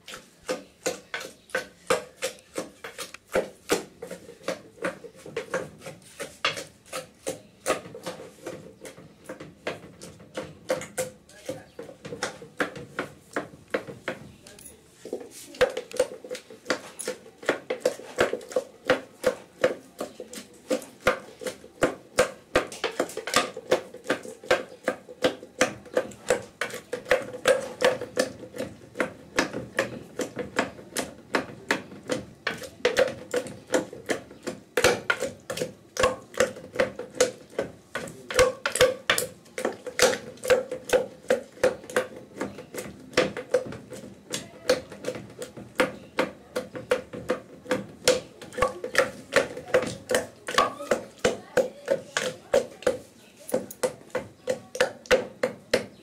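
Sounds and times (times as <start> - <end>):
wooden pestle pounding in mortar: 0.0 - 56.0.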